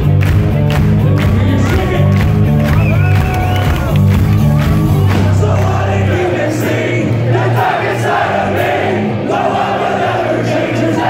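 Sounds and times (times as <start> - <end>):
live rock band: 0.0 - 11.0
crowd singing along: 5.1 - 11.0.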